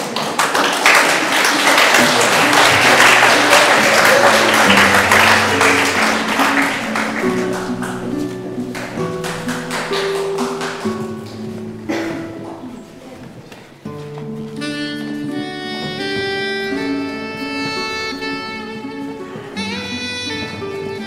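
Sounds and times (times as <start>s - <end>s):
audience applause: 0.0s - 12.9s
instrumental music with held notes: 1.4s - 21.0s.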